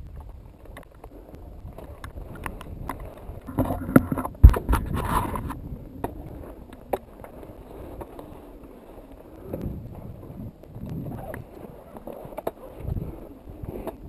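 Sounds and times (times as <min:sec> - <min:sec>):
low wind rumble: 0:01.5 - 0:08.0
soft bumps: 0:03.5 - 0:05.6.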